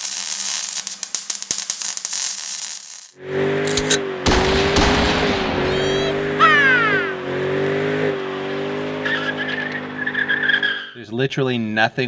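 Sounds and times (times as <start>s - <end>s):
car engine revving: 3.2s - 10.9s
tyres squealing: 9.0s - 11.0s.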